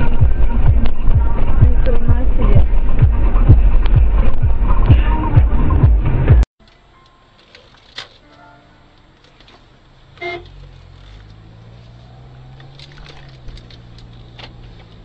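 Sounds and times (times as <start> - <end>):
car engine hum: 0.0 - 6.5, 7.3 - 15.0
short car horn toot: 10.1 - 10.6.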